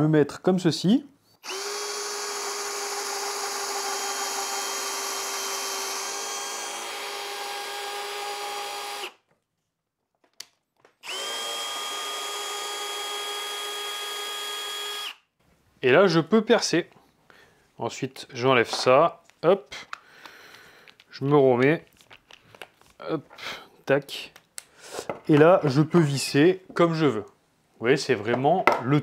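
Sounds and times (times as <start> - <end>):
cordless drill whining: 1.4 - 9.2, 11.0 - 15.2.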